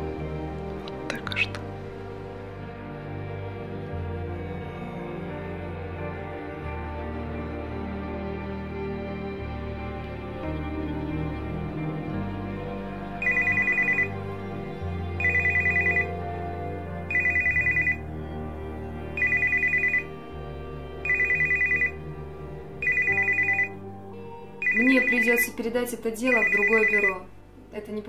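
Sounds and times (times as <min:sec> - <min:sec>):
soft slow background music: 0:00.0 - 0:28.0
electronic telephone ringing: 0:13.2 - 0:14.2, 0:15.2 - 0:16.2, 0:17.1 - 0:18.0, 0:19.2 - 0:20.1, 0:21.0 - 0:22.0, 0:22.8 - 0:23.8, 0:24.6 - 0:25.5, 0:26.3 - 0:27.2.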